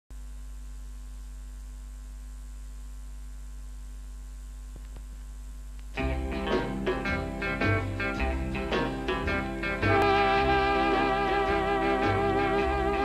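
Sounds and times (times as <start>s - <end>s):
electrical mains hum: 0.1s - 13.0s
music: 6.0s - 13.0s.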